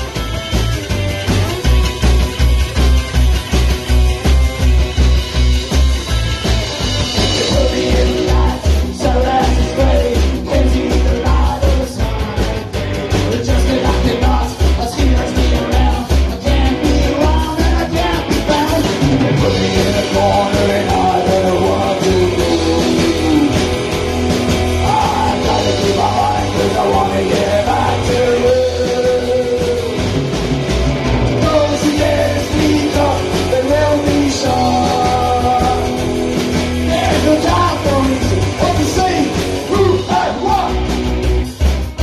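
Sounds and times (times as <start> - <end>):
drums: 0.0 - 42.0
electric guitar: 0.0 - 42.0
upright bass: 0.0 - 42.0
person singing: 7.2 - 12.0, 13.2 - 23.8, 24.8 - 30.2, 31.4 - 36.0, 36.8 - 40.8.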